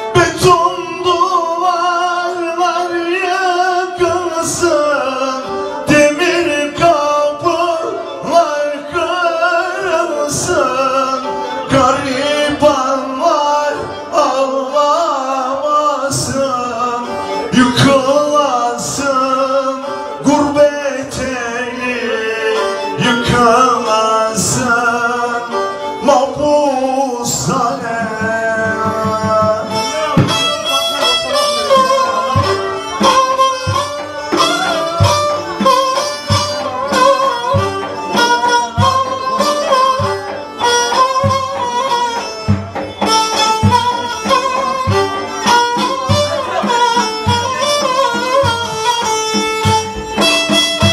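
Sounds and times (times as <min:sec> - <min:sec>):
man singing: 0:00.0 - 0:42.4
bowed fiddle: 0:00.0 - 0:50.9
steady beat: 0:27.4 - 0:50.9.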